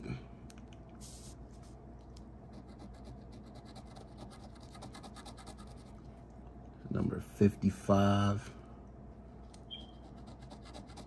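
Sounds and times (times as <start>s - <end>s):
coin scratching lottery ticket: 9.9s - 11.0s.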